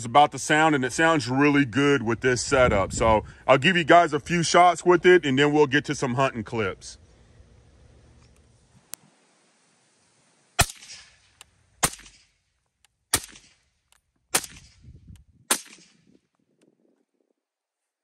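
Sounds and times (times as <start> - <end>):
gunshot echo: 10.6 - 12.3, 13.1 - 13.6, 14.3 - 14.8, 15.5 - 16.1
suppressed rifle shots: 10.6 - 12.4, 13.1 - 13.7, 14.3 - 14.9, 15.5 - 16.2.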